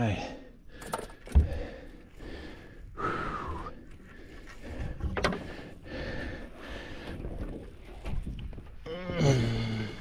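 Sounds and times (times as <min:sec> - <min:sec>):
man breathing hard and sighing: 0:00.1 - 0:07.2, 0:08.8 - 0:10.0.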